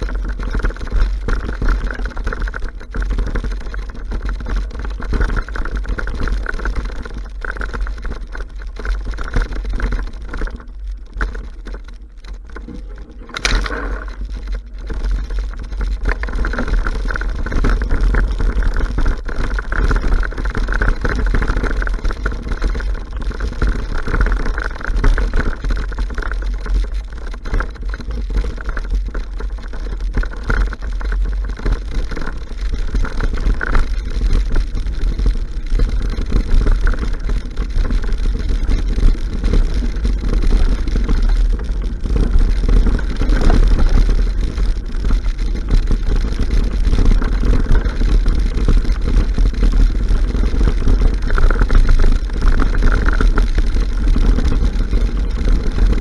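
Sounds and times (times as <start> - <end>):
bike rattling over ground: 0.0 - 56.0
mountain bike rumbling on dirt trail: 0.0 - 56.0
wind buffeting microphone: 30.0 - 56.0.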